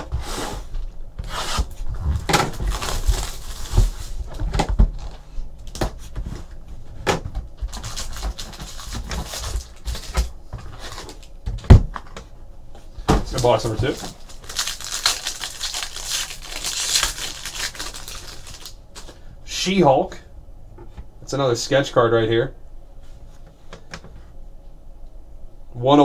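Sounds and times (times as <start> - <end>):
foil packs rustling: 1.5 - 6.5, 7.6 - 11.3, 13.2 - 19.2.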